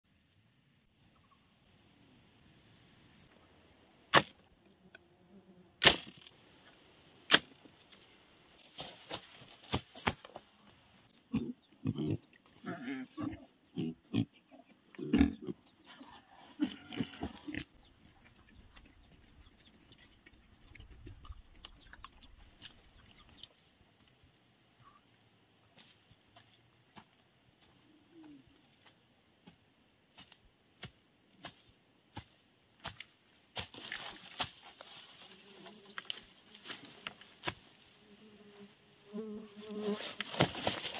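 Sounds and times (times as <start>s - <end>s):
pigs grunting: 11.3s - 17.8s.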